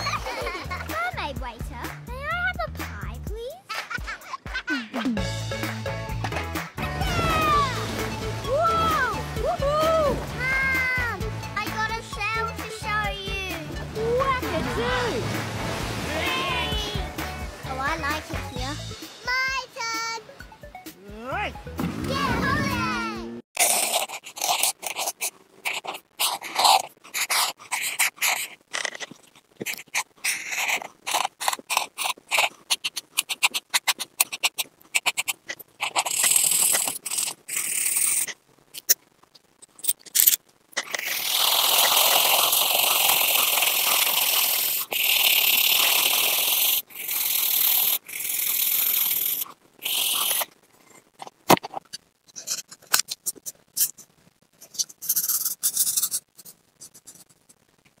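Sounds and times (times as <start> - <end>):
felt-tip pen scratching on paper: 23.6 - 37.4, 52.3 - 57.6.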